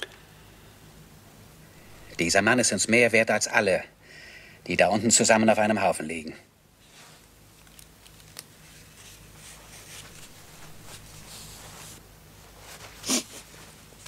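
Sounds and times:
low steady hum: 0:00.0 - 0:14.0
cloth rustling: 0:06.8 - 0:14.0.

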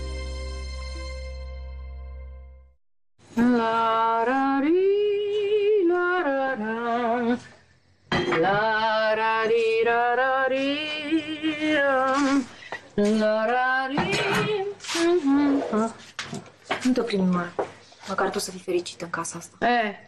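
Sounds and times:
woman singing unaccompanied: 0:03.3 - 0:07.5, 0:08.3 - 0:16.0.

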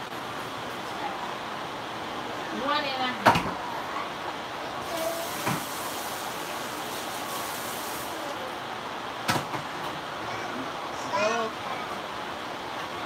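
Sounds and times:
steady hiss: 0:03.9 - 0:09.2.

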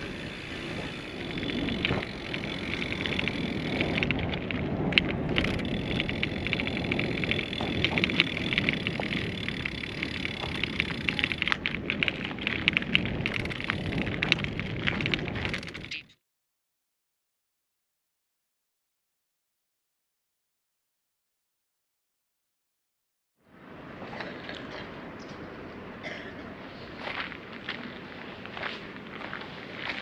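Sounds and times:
bicycle rolling noise: 0:00.0 - 0:16.1, 0:26.8 - 0:30.0
fast irregular clicking: 0:00.0 - 0:16.1
wind buffeting microphone: 0:00.0 - 0:16.1.

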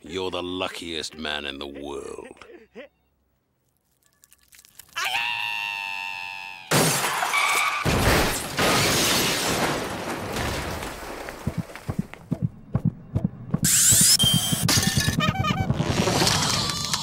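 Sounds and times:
loud crash with shattering: 0:06.7 - 0:11.3.

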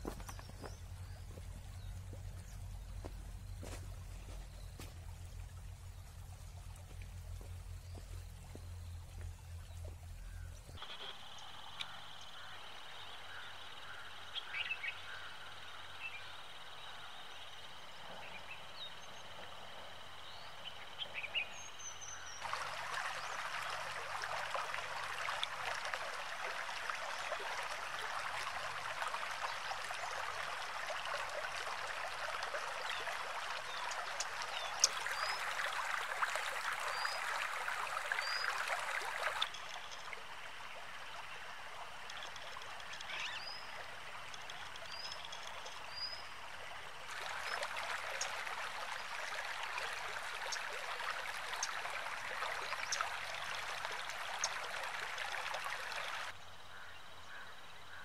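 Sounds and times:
stream rushing over stones: 0:00.0 - 0:09.9, 0:22.3 - 0:56.4.

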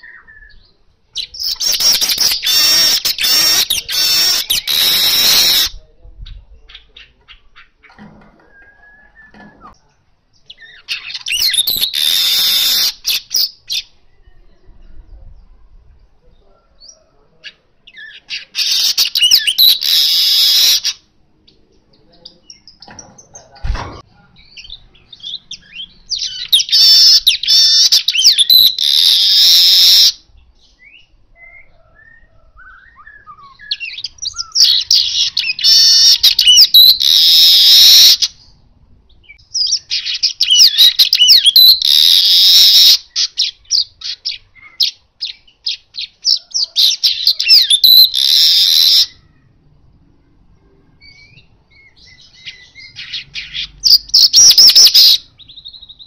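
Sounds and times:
bird chattering and buzzy trill: 0:01.2 - 0:08.0, 0:10.6 - 0:13.9, 0:17.5 - 0:21.0, 0:24.4 - 0:30.3, 0:33.5 - 0:38.6, 0:39.3 - 0:49.4, 0:51.1 - 0:56.0.

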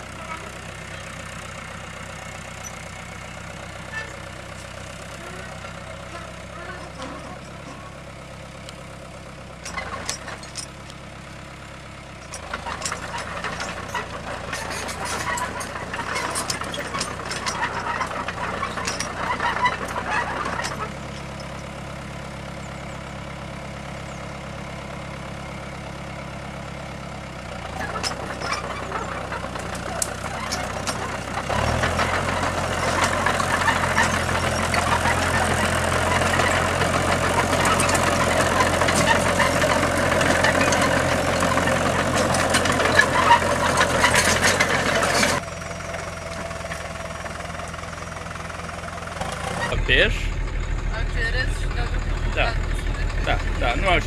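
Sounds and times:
tractor engine running: 0:00.0 - 0:54.0
cultivator dragging through grass: 0:27.6 - 0:48.3.

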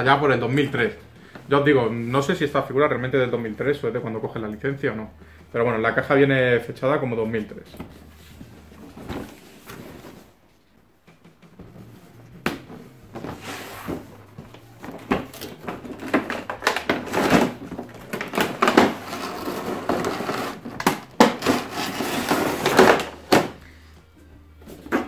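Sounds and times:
cardboard and plastic scraping: 0:07.7 - 0:10.4, 0:12.6 - 0:23.6.

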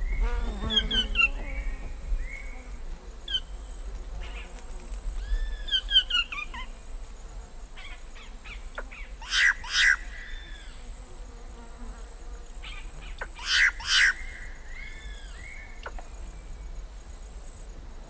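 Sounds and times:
high insect drone: 0:00.0 - 0:18.0
distant birds: 0:12.6 - 0:17.1.

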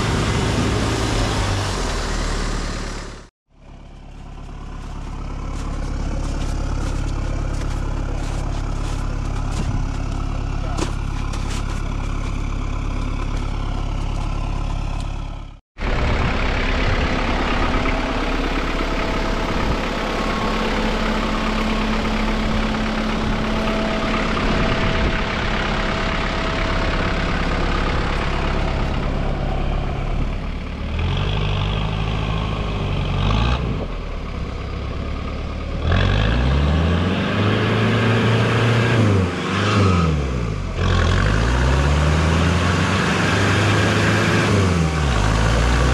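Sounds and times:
car engine revving: 0:35.8 - 0:45.9.

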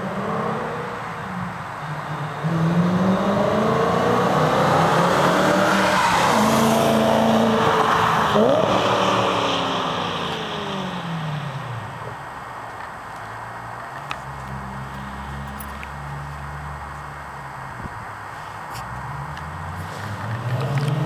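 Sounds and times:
car accelerating past: 0:00.0 - 0:11.9, 0:19.0 - 0:21.0.

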